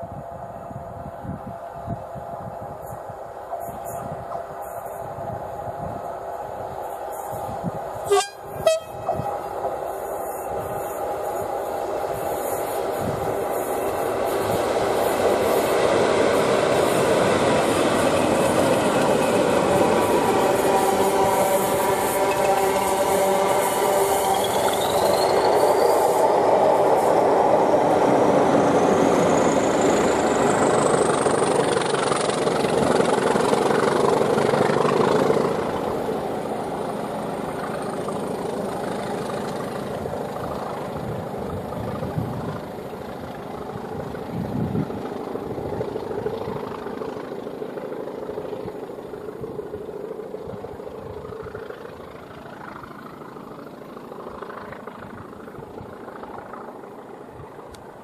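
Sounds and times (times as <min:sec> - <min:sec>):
high whine rising in pitch: 0:00.0 - 0:37.9
train engine and rail noise: 0:00.0 - 0:58.0.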